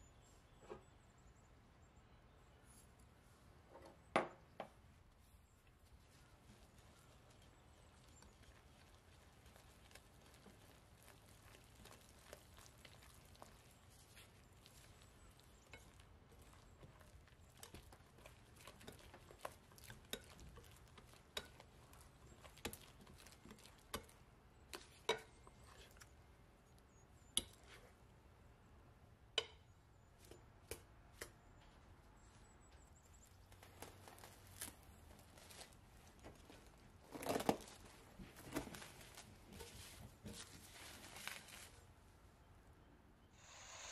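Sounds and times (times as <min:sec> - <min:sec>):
dough slapping in bowl: 0:06.0 - 0:26.1
faint hiss: 0:43.3 - 0:43.9.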